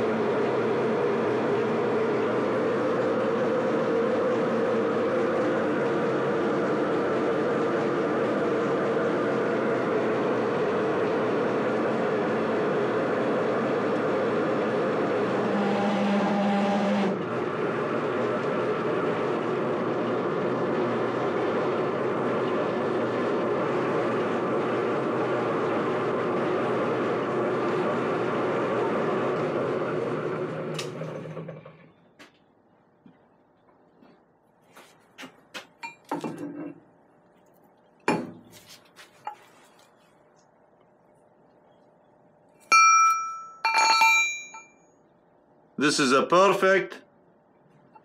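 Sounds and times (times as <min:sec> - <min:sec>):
metal lathe cutting steel: 0:00.0 - 0:31.8
ringing metal clinks: 0:42.7 - 0:45.0.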